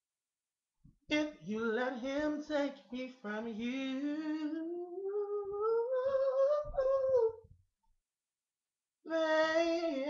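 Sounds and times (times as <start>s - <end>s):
man singing unaccompanied: 1.1s - 7.4s, 9.0s - 10.0s.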